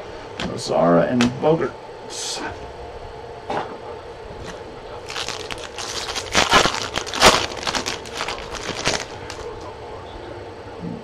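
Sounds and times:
foil wrapper tearing and crinkling: 0:05.0 - 0:09.6.

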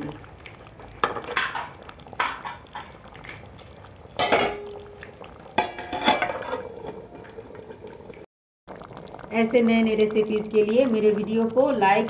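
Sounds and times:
metal ladle scraping metal pan: 0:04.2 - 0:04.7, 0:05.6 - 0:07.1.

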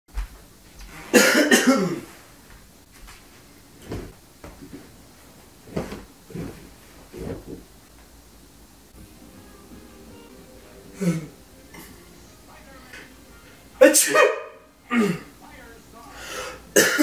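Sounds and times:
man coughing loudly: 0:01.1 - 0:02.1, 0:13.8 - 0:15.4, 0:16.7 - 0:17.0
person sitting down on couch: 0:02.0 - 0:07.7.

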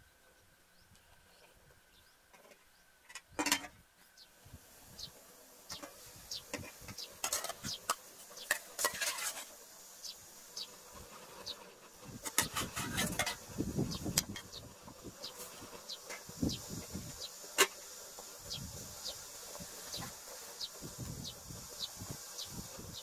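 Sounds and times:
insects buzzing: 0:00.0 - 0:23.0
clatter at metal pot: 0:02.4 - 0:03.8, 0:06.5 - 0:09.5, 0:12.2 - 0:13.4.

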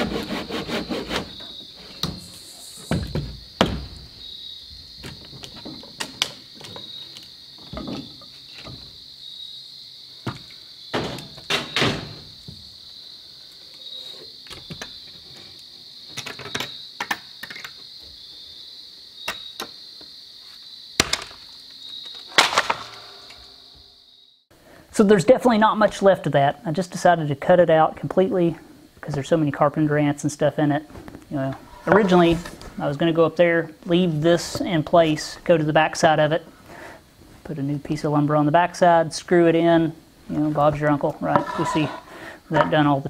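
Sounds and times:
timber knocking and scraping: 0:00.0 - 0:04.1, 0:31.5 - 0:32.7, 0:40.6 - 0:42.8
high-pitched insect chorus: 0:00.0 - 0:25.1, 0:37.9 - 0:43.0.

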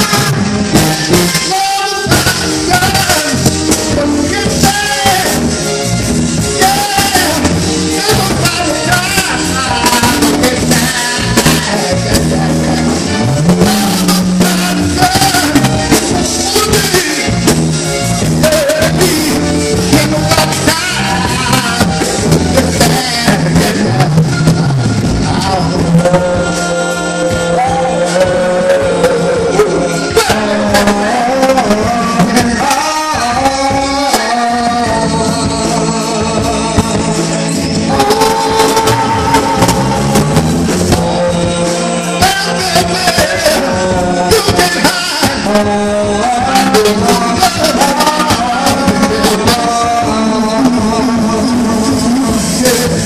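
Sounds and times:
man singing into a microphone: 0:00.0 - 0:53.0
soul music with drums: 0:00.0 - 0:53.0.

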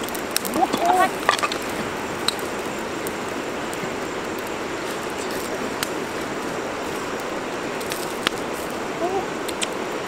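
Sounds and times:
fire pop: 0:00.0 - 0:06.3, 0:09.4 - 0:09.8
wood fire hissing and crackling: 0:00.0 - 0:10.0.

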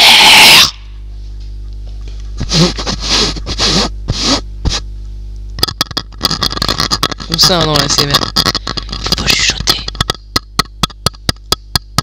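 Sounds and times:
electrical hum: 0:00.0 - 0:12.0
mouth noise on microphone: 0:01.9 - 0:05.0, 0:05.6 - 0:11.0
breathy scrapes on microphone: 0:02.4 - 0:04.9.

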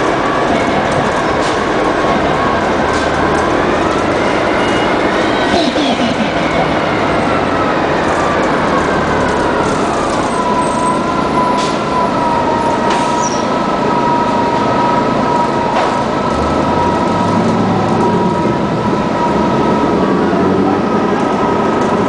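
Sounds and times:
bus drivetrain whine: 0:00.0 - 0:22.0.

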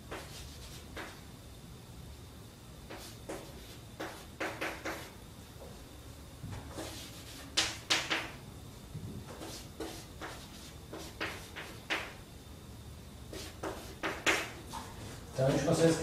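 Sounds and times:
chalk scratching on chalkboard: 0:00.1 - 0:01.2, 0:02.9 - 0:05.2, 0:06.7 - 0:08.3, 0:09.3 - 0:12.1, 0:13.3 - 0:14.6.

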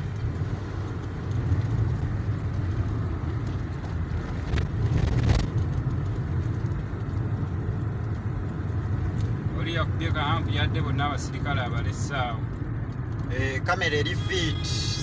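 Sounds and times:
car engine and tyre noise: 0:00.0 - 0:15.0.

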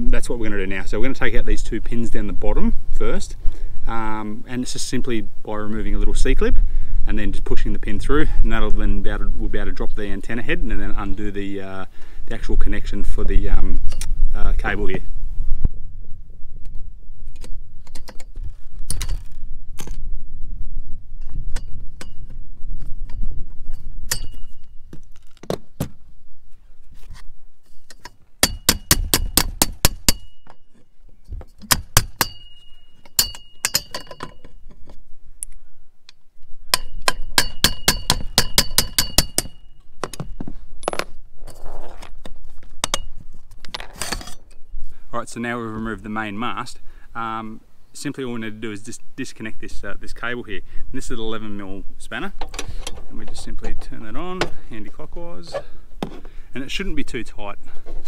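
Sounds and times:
hammer tapping metal pin: 0:31.6 - 0:34.5, 0:36.8 - 0:40.2.

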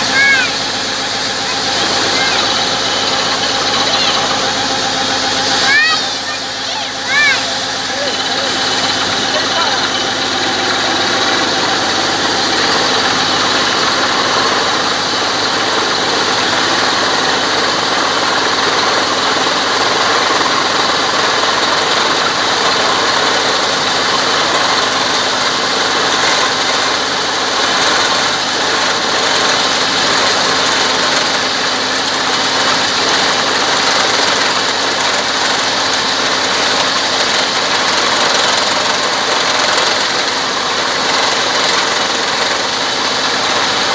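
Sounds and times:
drilling rig engine running: 0:00.0 - 0:43.9
water gushing and splashing into mud: 0:00.1 - 0:43.9.

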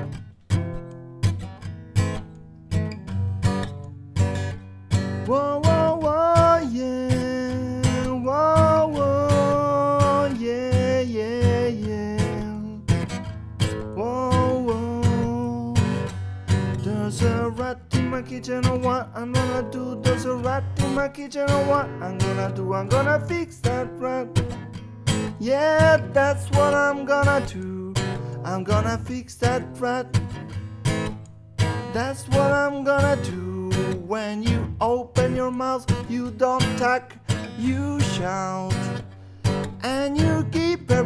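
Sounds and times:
acoustic guitar strumming: 0:00.0 - 0:41.0
wordless melody line: 0:13.5 - 0:41.0.

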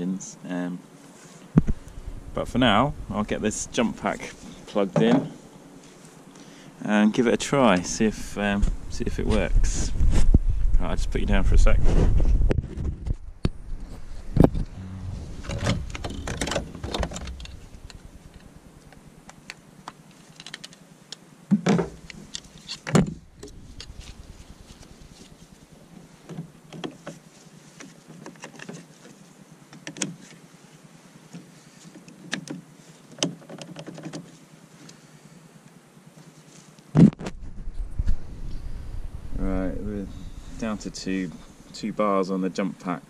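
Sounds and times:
jump leads clicking and rattling: 0:15.4 - 0:18.5.

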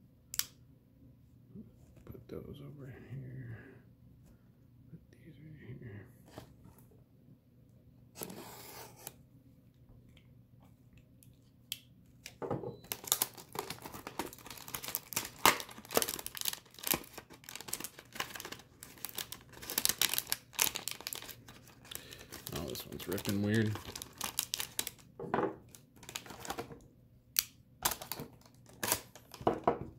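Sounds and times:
cardboard and wrapper tearing: 0:12.8 - 0:25.0, 0:25.7 - 0:26.7, 0:27.8 - 0:29.4.

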